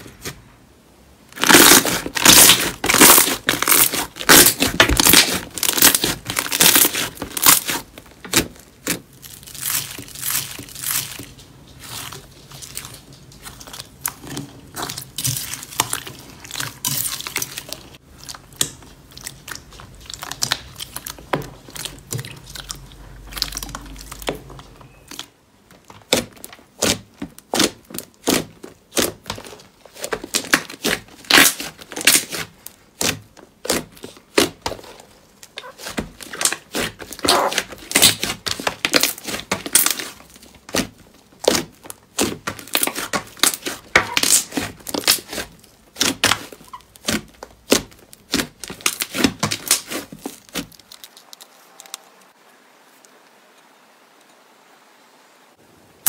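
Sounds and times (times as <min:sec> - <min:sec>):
slime air pockets popping: 0:01.4 - 0:17.7, 0:23.4 - 0:51.2
hands squishing slime: 0:01.4 - 0:52.0.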